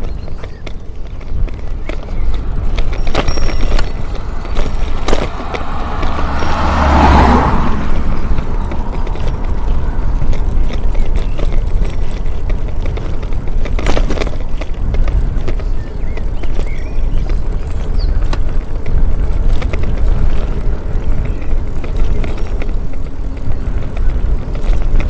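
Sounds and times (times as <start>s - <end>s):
bicycle on rough asphalt: 0.0s - 25.0s
bike rattling and knocking: 0.0s - 25.0s
wind buffeting microphone: 0.0s - 25.0s
rushing swell: 4.2s - 9.0s.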